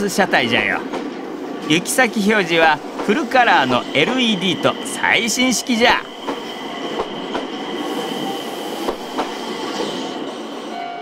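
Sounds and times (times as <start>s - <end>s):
train rolling past: 0.0s - 11.0s
wheels clacking over rail joints: 5.5s - 7.9s, 8.8s - 10.3s.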